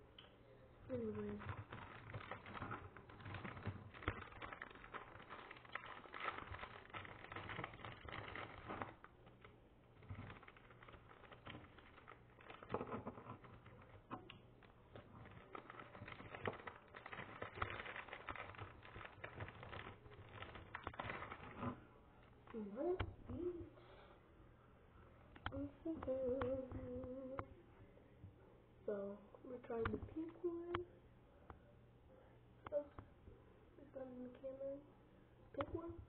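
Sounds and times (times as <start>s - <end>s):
hands handling small objects: 0.9s - 22.6s.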